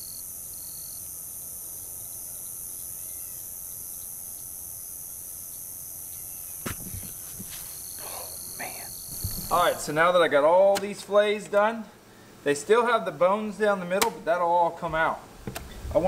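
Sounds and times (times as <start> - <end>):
crickets and insects chirping: 0.0 - 13.2
sharp knock: 6.6 - 7.2.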